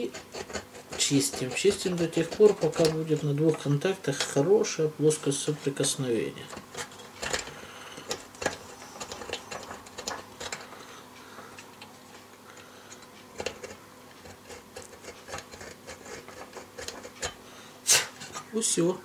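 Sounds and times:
nail file scraping metal contacts: 0.0 - 4.4, 6.4 - 10.8, 11.6 - 17.4.

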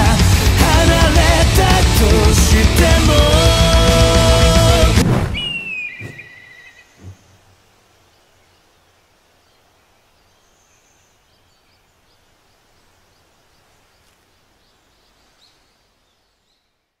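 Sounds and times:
faint outdoor ambience: 4.8 - 17.0
bird chirps: 5.3 - 16.8.

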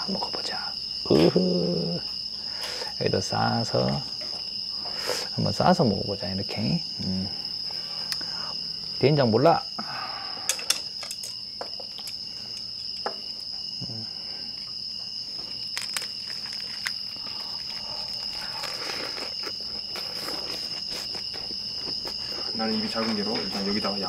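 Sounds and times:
crickets chirring: 0.0 - 24.0
small clicks and crunches: 15.7 - 22.2
close chewing: 15.7 - 22.5.

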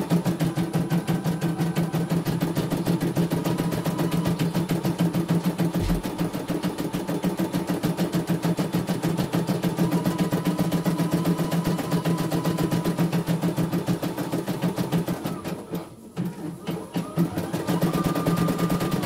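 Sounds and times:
motor hum: 5.7 - 6.4
short low thud: 5.8 - 6.3.

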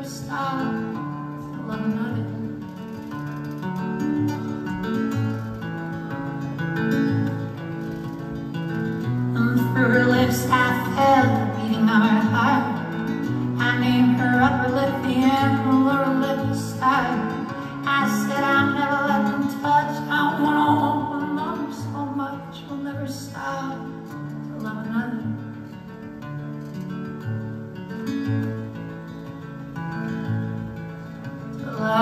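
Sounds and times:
acoustic guitar chords: 0.0 - 32.0
man singing in a high voice: 13.6 - 23.9.

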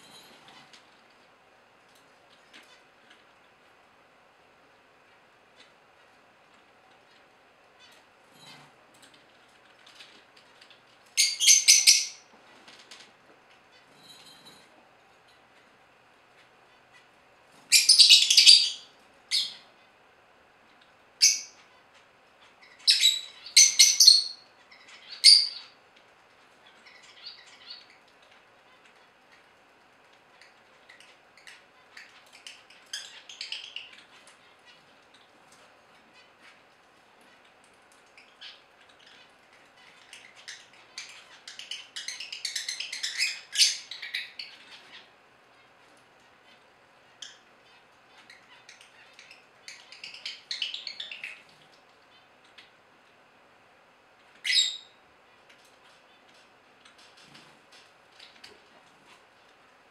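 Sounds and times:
lovebirds chattering: 9.2 - 14.0, 15.4 - 20.0, 20.6 - 52.8, 54.2 - 57.4.

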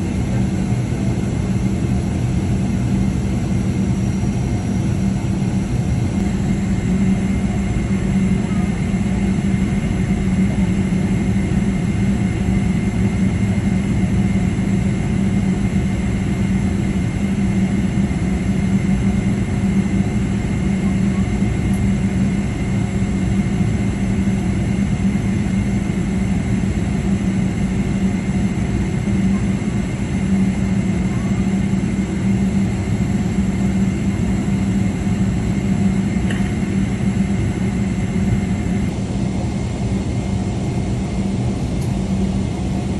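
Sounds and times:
jet engine drone in cabin: 0.0 - 42.9
faint high whine: 3.3 - 31.5.

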